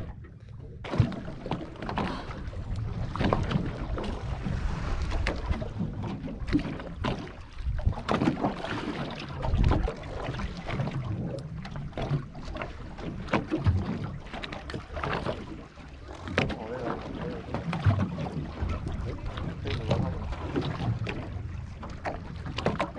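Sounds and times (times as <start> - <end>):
waves slapping boat hull: 0.0 - 22.9
wind buffeting microphone: 1.0 - 12.1.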